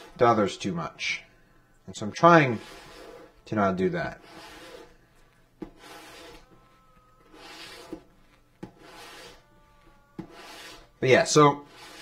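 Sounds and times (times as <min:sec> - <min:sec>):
hand tool rubbing leather: 0:02.2 - 0:03.4, 0:04.1 - 0:12.0.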